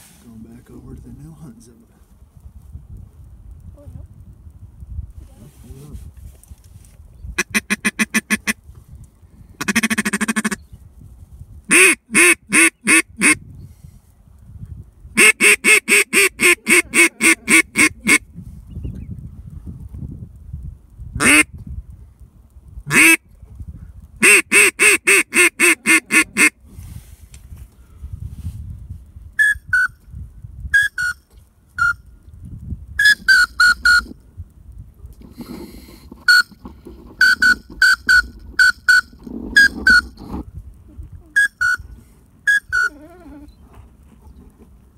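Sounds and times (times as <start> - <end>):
duck call quacks: 7.4 - 8.6, 9.6 - 10.6, 11.7 - 13.4, 15.2 - 18.2, 21.2 - 21.5, 22.9 - 23.2, 24.2 - 26.6, 35.4 - 40.4.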